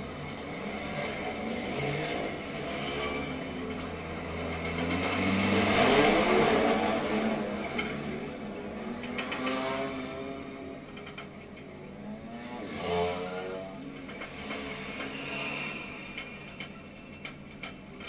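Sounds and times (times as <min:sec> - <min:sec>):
motorbike passing: 0:00.5 - 0:10.8.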